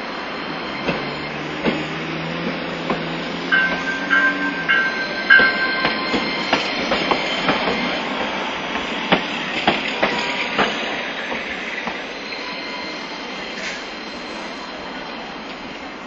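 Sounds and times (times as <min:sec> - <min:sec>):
tram wheels clunking over rail joints: 0:00.0 - 0:12.2
tram running noise: 0:00.0 - 0:16.0.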